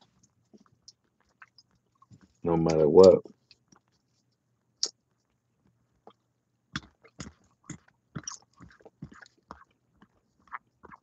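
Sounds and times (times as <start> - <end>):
wet mouth smacks and clicks: 6.8 - 9.6.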